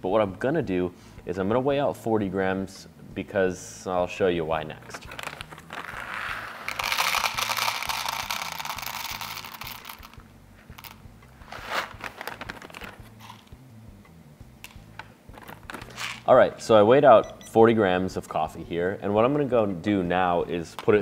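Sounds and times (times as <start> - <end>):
coffee beans rattling into container: 5.0 - 11.0, 11.6 - 13.5, 15.3 - 16.3
foil bag crinkling: 11.6 - 13.4, 15.4 - 16.2.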